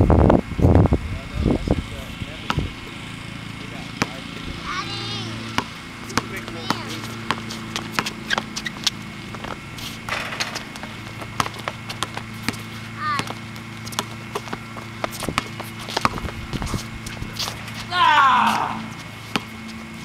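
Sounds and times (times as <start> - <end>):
steady low hum: 0.0 - 20.0
players calling out: 2.2 - 20.0
basketball dribbling thuds: 3.9 - 4.6, 5.4 - 19.9.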